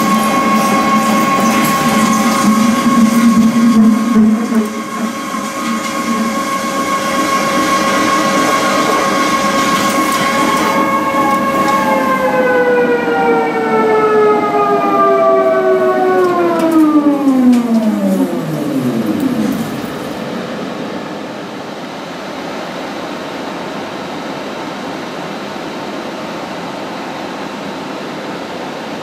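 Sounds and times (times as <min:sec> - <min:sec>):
pipe cutting machine whining: 0:00.0 - 0:20.4.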